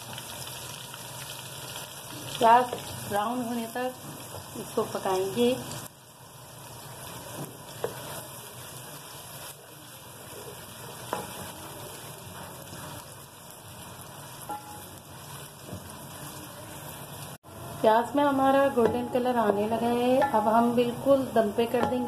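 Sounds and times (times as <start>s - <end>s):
onions sizzling in pot: 0.0s - 22.0s
wooden spatula knocking pot: 18.7s - 20.6s, 21.7s - 22.0s.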